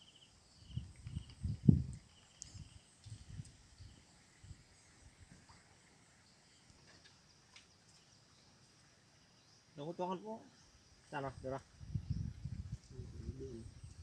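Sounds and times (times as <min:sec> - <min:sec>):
insects chirping: 0:00.0 - 0:14.0
wind buffeting microphone: 0:00.6 - 0:04.7, 0:11.2 - 0:14.0.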